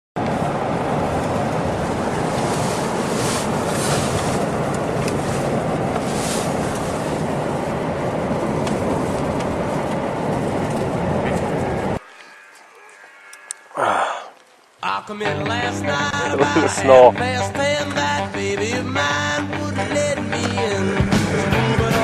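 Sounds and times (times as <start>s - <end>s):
road and wind noise in car: 0.2s - 12.0s, 16.4s - 21.2s.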